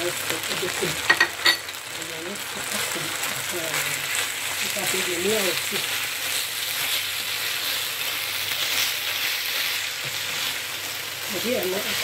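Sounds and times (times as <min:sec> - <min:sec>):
meat sizzling in a frying pan: 0:00.0 - 0:12.0
spatula stirring in pan: 0:02.5 - 0:12.0.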